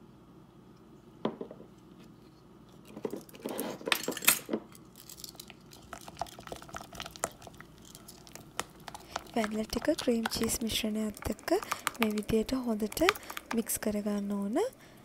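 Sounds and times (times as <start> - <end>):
spatula stirring in glass bowl: 5.7 - 14.3.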